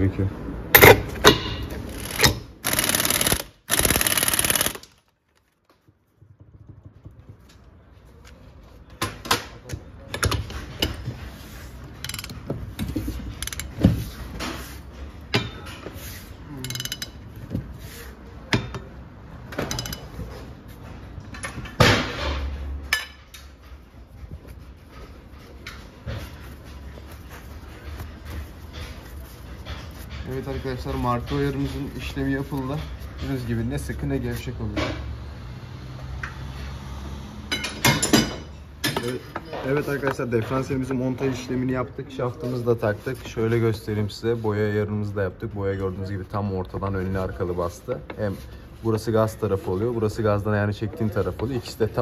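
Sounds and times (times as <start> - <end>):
impact wrench hammering: 0.8 - 5.0
rapid ratchet clicks: 1.9 - 5.0
wrench knocking and clanking on metal: 12.0 - 14.0, 16.6 - 17.6, 18.5 - 20.3.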